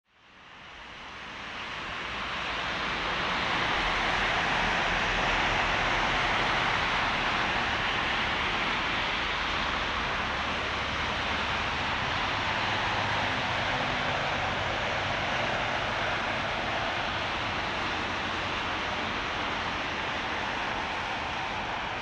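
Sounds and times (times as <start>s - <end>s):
distant jet aircraft rushing: 2.8s - 22.0s.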